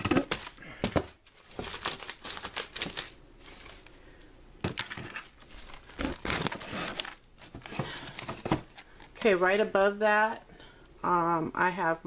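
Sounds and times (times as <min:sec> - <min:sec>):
plastic bags crinkling: 0:00.0 - 0:03.9, 0:04.7 - 0:09.4.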